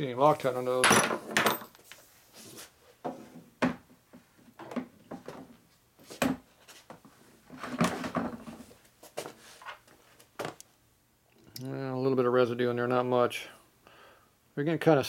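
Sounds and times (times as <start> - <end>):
steel parts clunking on workbench: 0.8 - 1.8.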